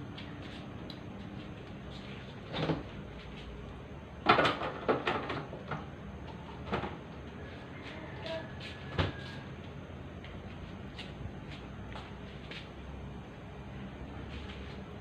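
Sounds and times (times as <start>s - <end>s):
knocks and clatters in kitchen: 4.2s - 5.9s, 6.6s - 7.0s.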